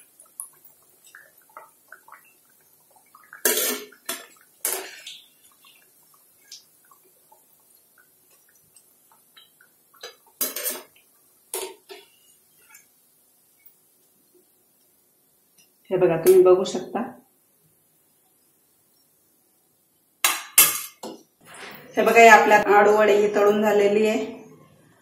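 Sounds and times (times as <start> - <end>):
frying oil crackling: 0.0 - 17.0.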